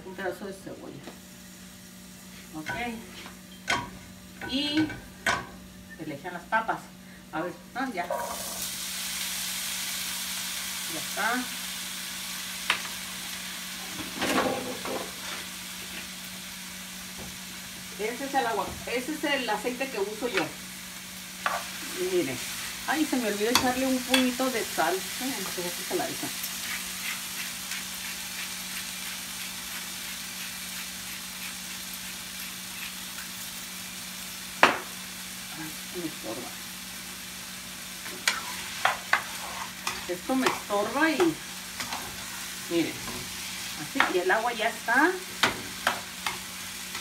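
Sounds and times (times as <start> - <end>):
potatoes sizzling in oil: 1.2 - 47.0
grinder knocking on tile counter: 34.6 - 34.9.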